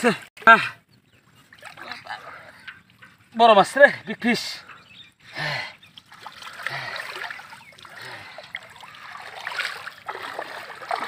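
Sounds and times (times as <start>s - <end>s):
water sloshing and splashing: 1.0s - 3.8s, 5.7s - 11.0s.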